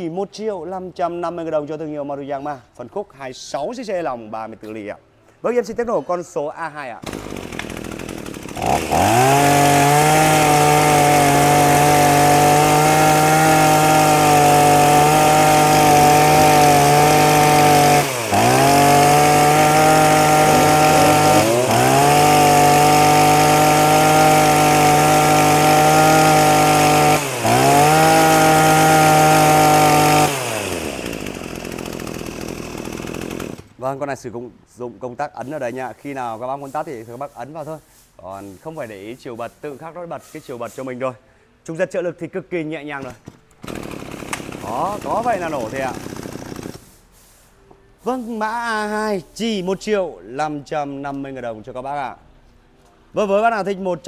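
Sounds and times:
brush cutter engine revving: 7.0 - 33.8, 43.0 - 47.0.

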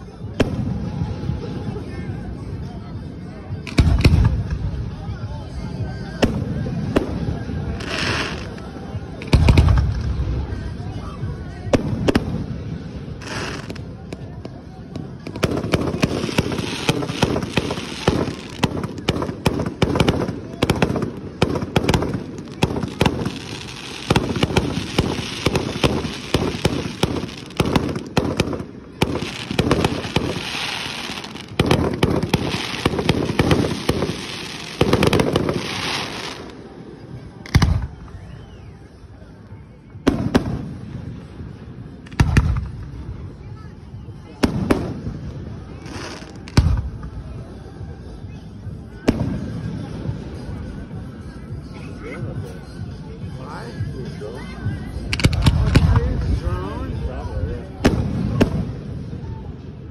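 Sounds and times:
fireworks launches and bursts: 3.6 - 5.2, 5.8 - 39.0, 40.0 - 50.8, 54.9 - 59.8
fireworks crackling: 3.6 - 51.7, 53.8 - 59.9.

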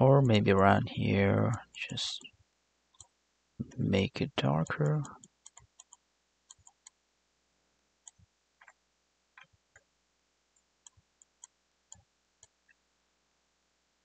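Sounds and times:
computer mouse clicks: 4.8 - 7.0.

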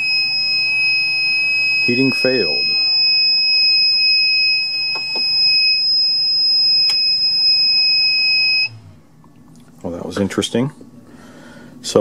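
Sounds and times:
high-pitched buzzer alarm tone: 0.0 - 8.8
low hum: 0.0 - 9.4.

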